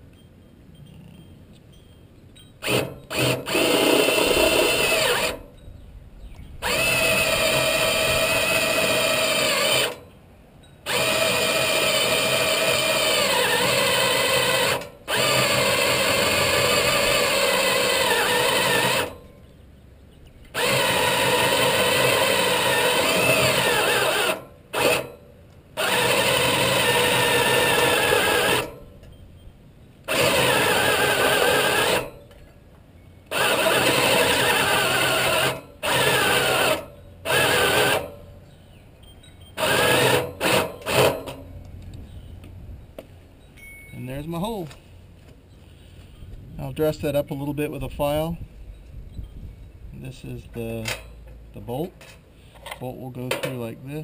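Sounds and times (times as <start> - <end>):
electric drill drilling steel: 2.6 - 5.4, 6.6 - 10.0, 10.8 - 19.2, 20.6 - 25.2, 25.8 - 28.8, 30.1 - 32.2, 33.3 - 38.2, 39.6 - 41.4.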